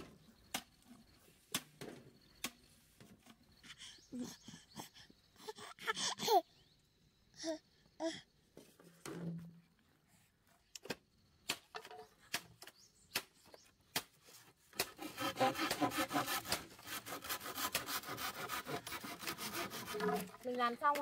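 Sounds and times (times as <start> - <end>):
machete scraping bamboo: 11.5 - 21.0.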